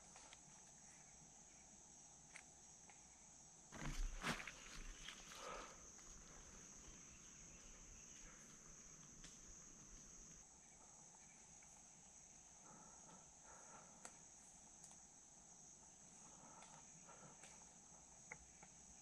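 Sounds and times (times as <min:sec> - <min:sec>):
insects droning: 0:00.0 - 0:19.0
small ticks: 0:04.7 - 0:10.4, 0:13.0 - 0:15.1, 0:15.8 - 0:19.0.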